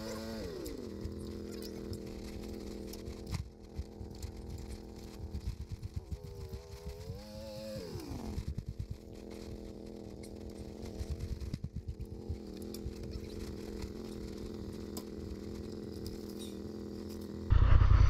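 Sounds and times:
off-road vehicle engine revving: 0.0 - 18.0
low rumbling thumps: 17.5 - 18.0.

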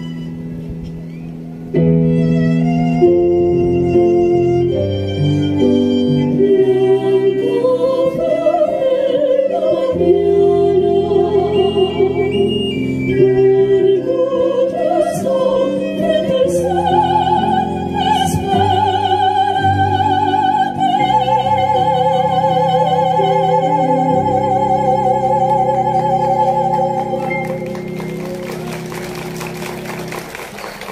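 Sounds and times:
keyboard and violin: 0.0 - 29.5
sopranos singing operatically: 6.3 - 28.3.

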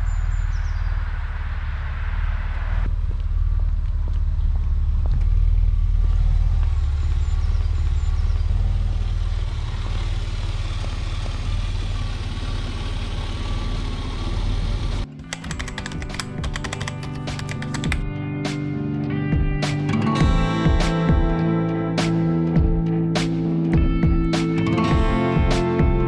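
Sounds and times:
car engine running: 0.0 - 18.0
music: 15.0 - 26.0.

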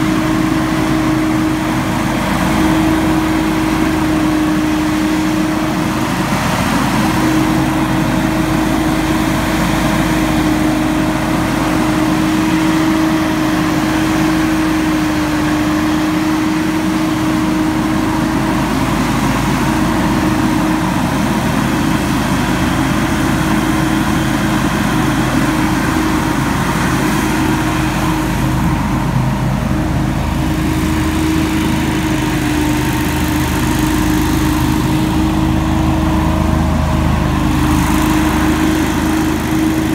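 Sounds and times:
leaf blower droning: 0.0 - 39.9.

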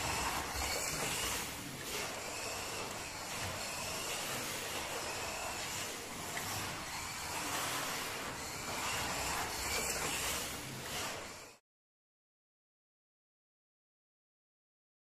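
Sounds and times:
slot car motor whine: 0.0 - 11.6.

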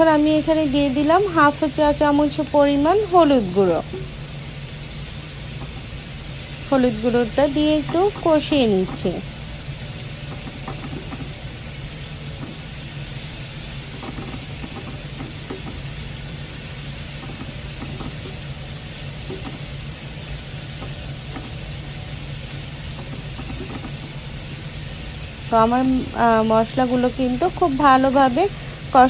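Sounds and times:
spices sizzling in oil: 0.0 - 29.0
spatula scraping a pan: 13.7 - 16.0.

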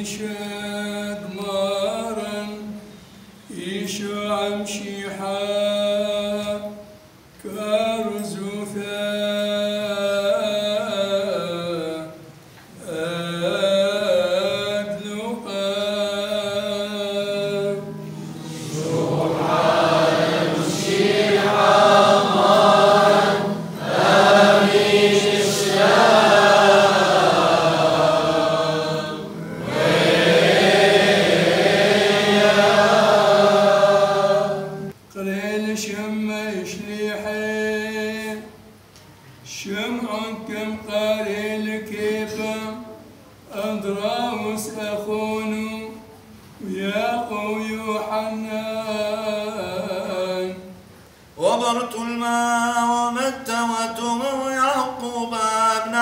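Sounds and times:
men singing liturgical chant: 18.5 - 34.6.

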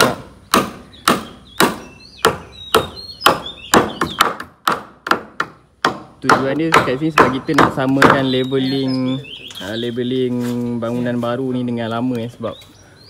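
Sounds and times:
hammer blows on timber: 0.0 - 8.6.

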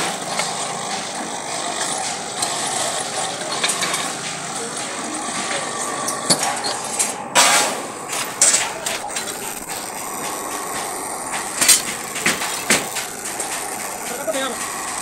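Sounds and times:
steady machine noise: 0.0 - 15.0
sharp metallic clanks: 3.5 - 13.8.

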